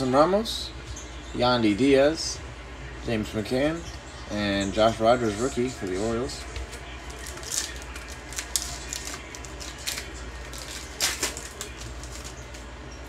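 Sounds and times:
foil wrapper crinkling and tearing: 5.8 - 12.7.

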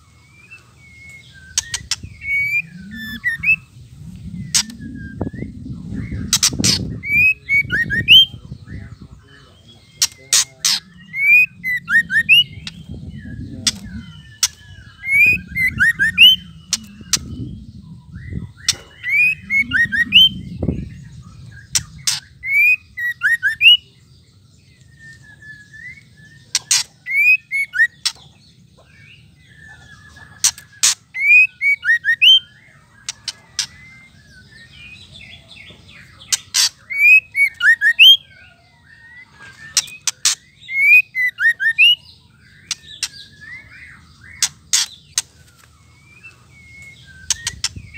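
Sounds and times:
bird whistling calls: 0.3 - 23.9, 24.8 - 28.3, 29.4 - 47.9
low rumble: 0.8 - 7.2, 10.5 - 22.4.

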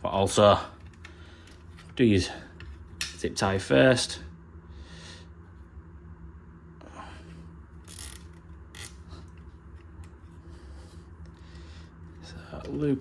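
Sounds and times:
cable tie ratcheting zips: 7.8 - 9.1.

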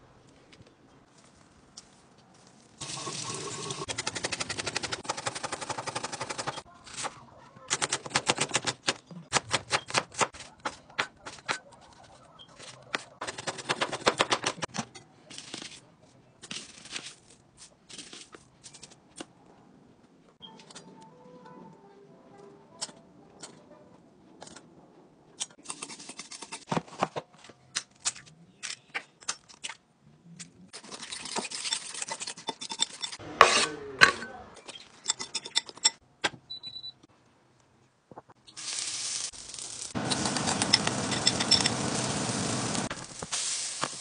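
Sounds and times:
spoon scraping ceramic bowl: 30.8 - 36.0
batter sizzling in frying pan: 38.5 - 44.0.

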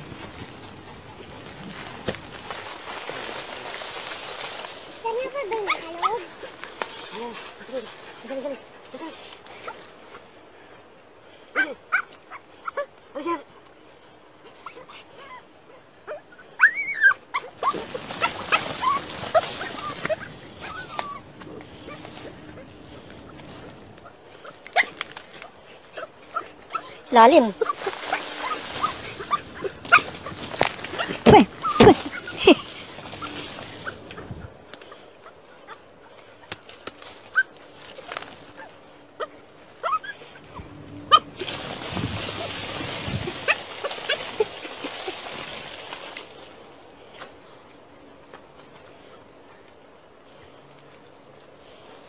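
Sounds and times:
soil clicks and scrapes: 0.0 - 5.8
paws scratching loose dirt: 0.0 - 10.3, 16.1 - 52.0
dogs whining and yipping: 14.5 - 23.0, 24.0 - 34.5, 38.6 - 44.5
dog whining: 16.1 - 21.2.

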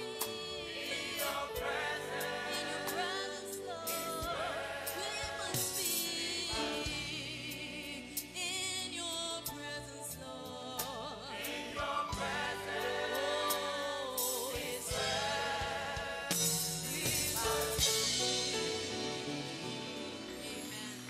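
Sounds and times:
gospel choir singing in harmony: 0.0 - 21.0.

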